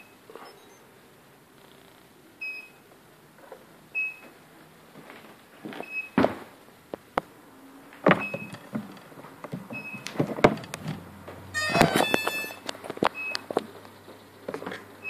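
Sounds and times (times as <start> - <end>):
handling clicks and knocks: 8.0 - 14.9
clatter and tones: 8.1 - 13.7
short high beeps: 11.6 - 12.6.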